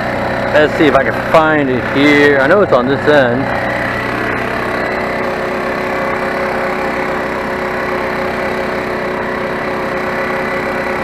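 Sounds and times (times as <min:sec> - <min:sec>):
air compressor running: 0:00.0 - 0:11.0
generator running: 0:00.0 - 0:11.0.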